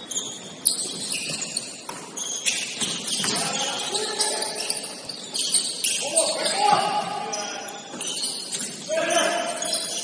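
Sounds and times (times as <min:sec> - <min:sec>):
shoes squeaking on gym court: 0:00.0 - 0:10.0
players calling out: 0:02.5 - 0:10.0.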